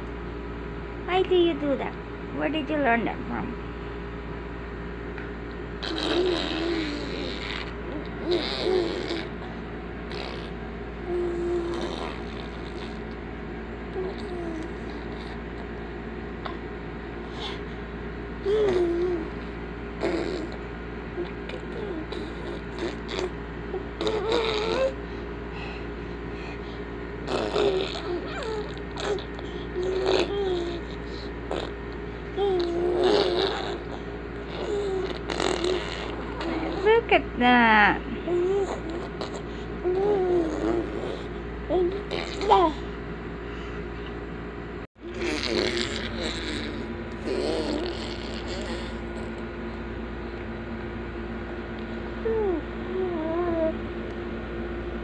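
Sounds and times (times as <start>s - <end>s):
steady background hum: 0.0s - 55.0s
baby babbling and cooing: 5.8s - 9.5s, 10.1s - 13.0s, 13.9s - 15.4s, 18.4s - 20.6s, 21.2s - 25.0s, 27.3s - 31.7s, 32.3s - 37.0s, 38.3s - 42.9s, 45.0s - 49.3s, 52.2s - 53.8s.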